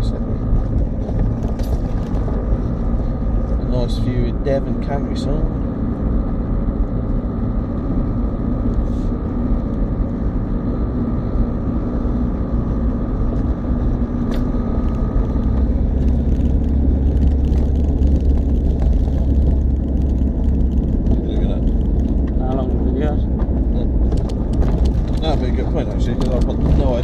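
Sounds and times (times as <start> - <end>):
diesel engine running: 0.0 - 27.0
steady engine whine: 0.0 - 27.0.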